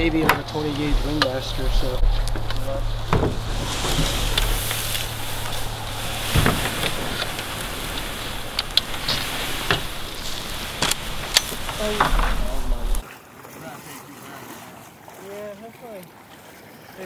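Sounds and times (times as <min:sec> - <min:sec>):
kayak dragged over dry grass: 0:00.0 - 0:15.6
footsteps in grass: 0:00.6 - 0:13.0
stems snapping: 0:02.0 - 0:13.0.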